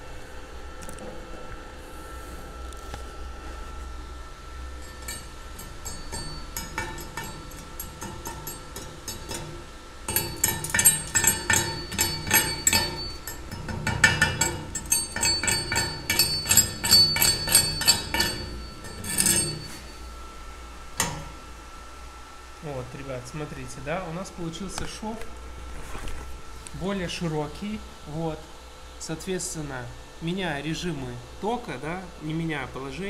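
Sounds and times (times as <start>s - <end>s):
chipping hammer striking metal: 4.9s - 19.8s.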